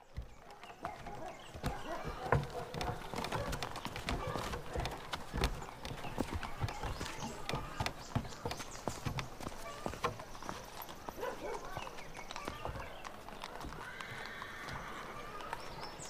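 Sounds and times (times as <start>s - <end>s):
clopping knocks: 0.1s - 12.9s.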